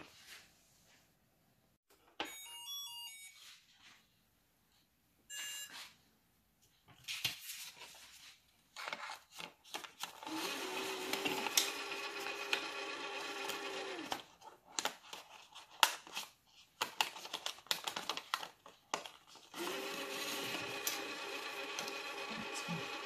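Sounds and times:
motorised note slot whirring: 10.1s - 14.3s, 19.5s - 23.0s.

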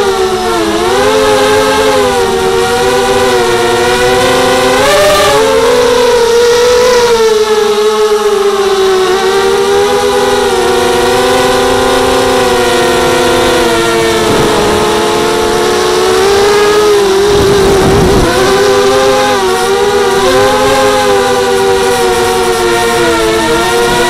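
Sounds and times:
quadcopter motors whining: 0.0s - 24.0s
wind noise: 0.4s - 7.4s, 9.8s - 24.0s.

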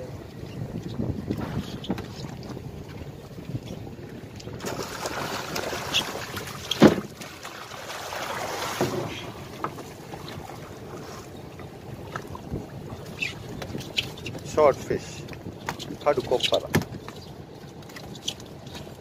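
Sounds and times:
water splashing and churning: 0.0s - 19.0s.

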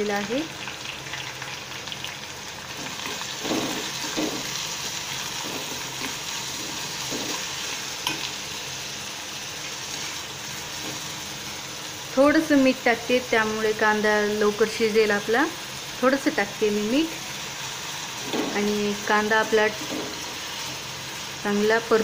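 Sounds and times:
onion sizzling in hot oil: 0.0s - 22.0s
steel spoon scraping pan: 2.8s - 8.3s.

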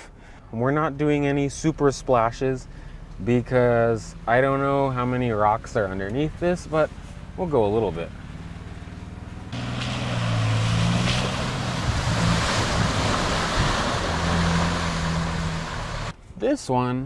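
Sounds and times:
low engine hum: 1.2s - 16.2s
water splashing from tyres: 8.1s - 16.1s.

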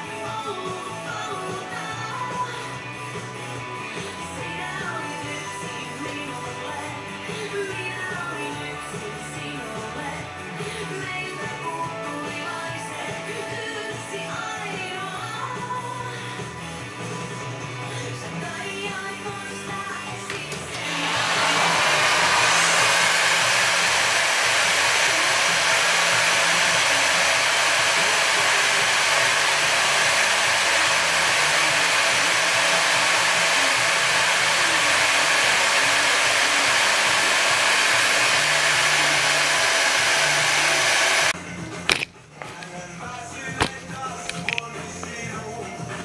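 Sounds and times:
blown air hissing: 20.8s - 41.4s.

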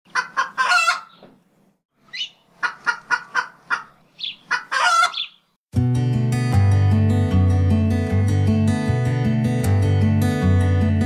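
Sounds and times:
chicken clucking: 0.1s - 1.4s, 2.1s - 5.4s
acoustic guitar music: 5.7s - 11.0s.

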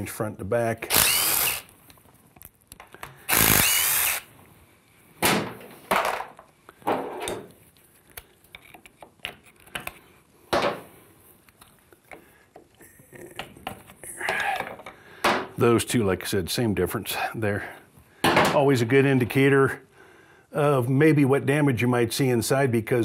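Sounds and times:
power driver running: 0.9s - 1.7s, 3.3s - 4.3s.

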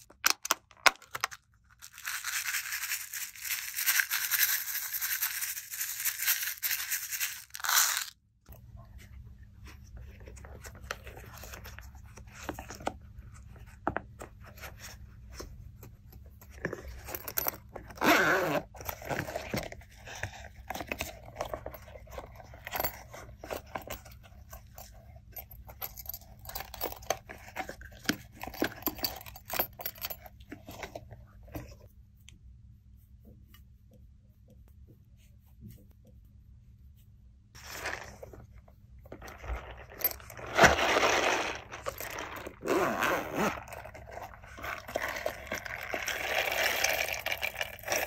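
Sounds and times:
silicone bag being handled: 37.6s - 48.0s.

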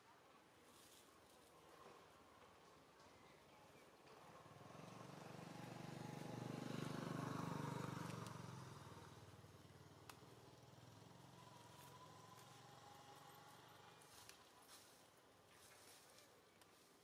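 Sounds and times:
vehicle engine passing by: 4.2s - 14.2s.

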